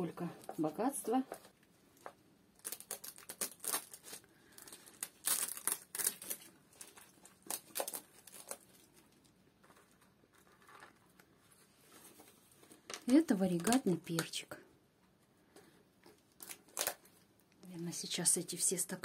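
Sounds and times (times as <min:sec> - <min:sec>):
plastic cups crinkling: 0:00.4 - 0:11.4.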